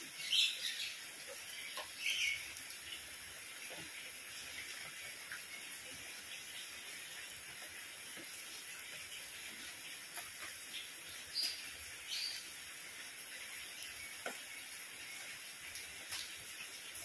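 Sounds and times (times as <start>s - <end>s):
rain falling on paving and plants: 0.0s - 17.0s
bird chirps: 1.6s - 2.5s.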